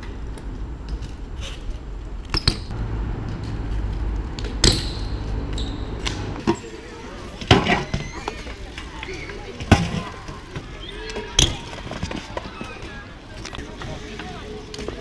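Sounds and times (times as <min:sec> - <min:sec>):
bike tyres rumbling on paving: 0:02.6 - 0:10.8.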